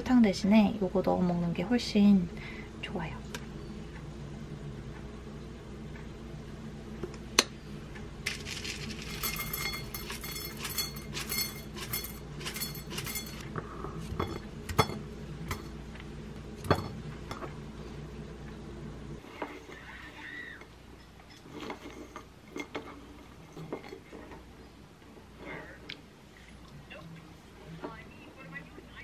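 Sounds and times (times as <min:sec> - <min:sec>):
granola rattling into a bowl: 0:08.3 - 0:13.4.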